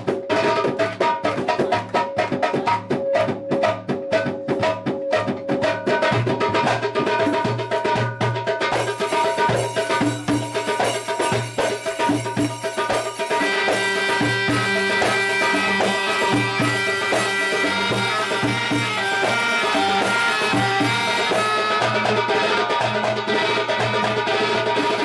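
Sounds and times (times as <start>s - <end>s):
steady drum beat: 0.0s - 25.0s
held melody notes: 9.0s - 25.0s.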